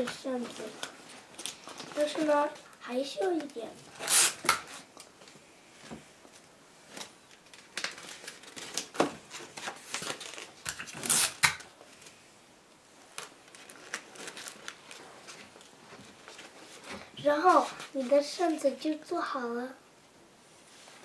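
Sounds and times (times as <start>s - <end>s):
folded paper rustling and crinkling: 0.0s - 3.8s, 6.3s - 12.2s, 13.1s - 18.8s.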